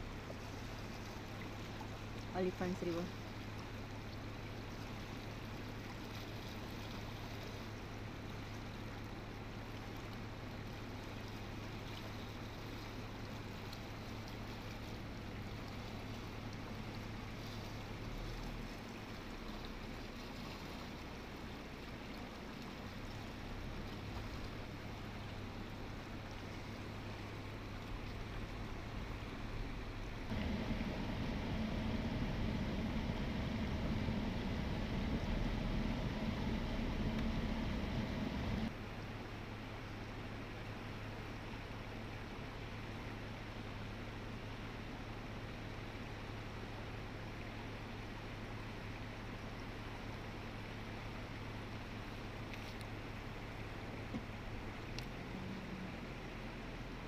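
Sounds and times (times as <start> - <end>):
low steady hum: 0.0 - 57.0
river water rushing: 21.2 - 40.0.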